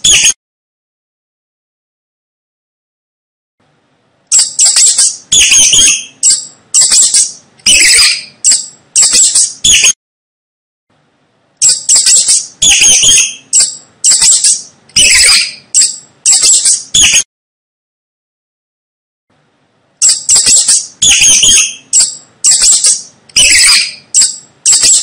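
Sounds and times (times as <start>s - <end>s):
mice squeaking: 0.0s - 0.4s, 4.3s - 10.0s, 11.6s - 17.3s, 20.0s - 25.0s.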